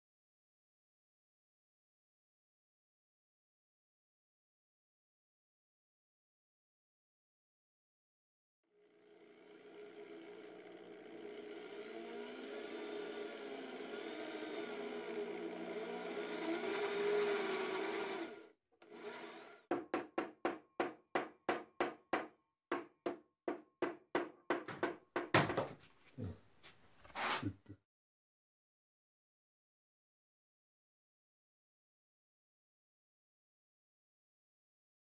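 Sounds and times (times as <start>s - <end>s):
electric drill boring through board: 9.0s - 19.9s
hand tool strokes on board: 26.6s - 27.6s.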